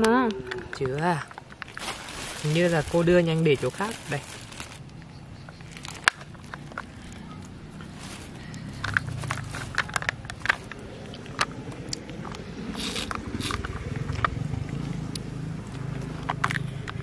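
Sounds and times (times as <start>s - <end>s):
clothing rustle: 1.6s - 4.8s, 5.8s - 10.7s.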